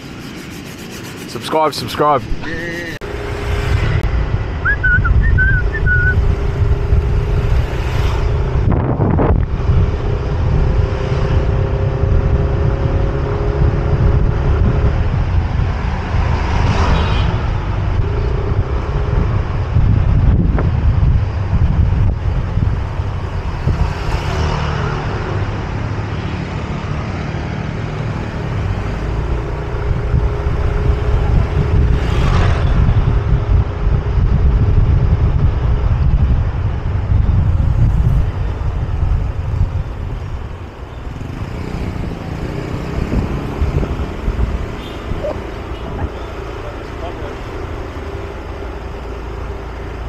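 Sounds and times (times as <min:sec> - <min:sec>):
wind rushing over microphone: 0:00.0 - 0:50.0.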